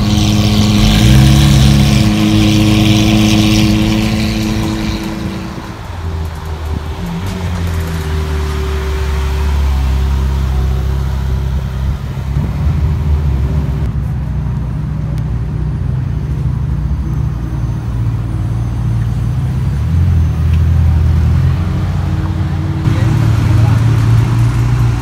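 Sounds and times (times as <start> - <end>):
car engine idling: 22.1 - 25.0.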